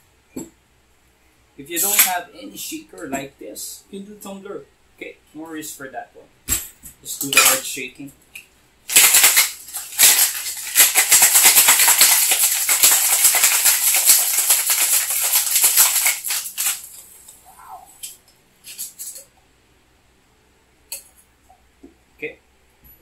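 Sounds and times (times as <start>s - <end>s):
cocktail shaker rattling: 8.9s - 17.1s, 18.7s - 19.3s.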